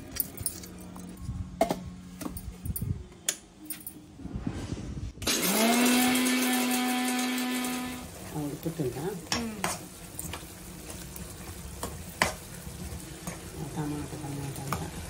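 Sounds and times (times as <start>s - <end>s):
mixer grinder motor grinding: 5.2s - 8.3s.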